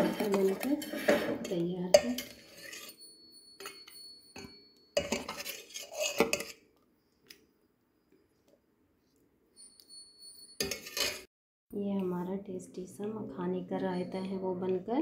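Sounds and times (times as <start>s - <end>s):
metal spoon scraping steel bowl: 0.0s - 6.6s, 10.5s - 11.3s.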